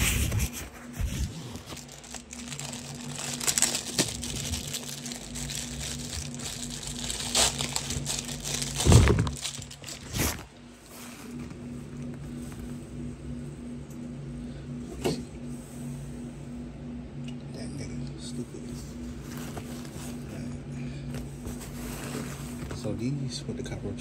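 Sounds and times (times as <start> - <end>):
plastic packaging crinkling: 0.0 - 10.6
faint low hum: 0.0 - 24.0.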